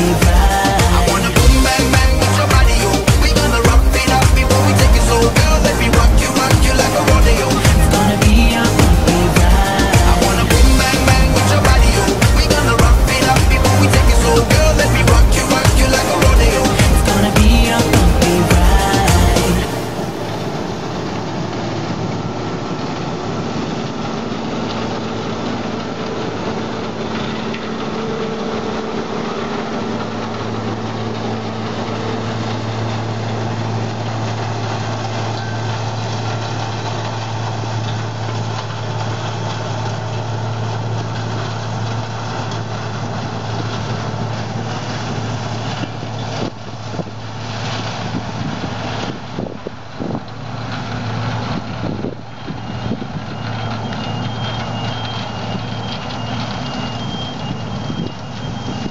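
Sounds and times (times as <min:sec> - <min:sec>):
deep steady hum: 0:00.0 - 0:23.2
combine harvester drone: 0:00.0 - 0:58.9.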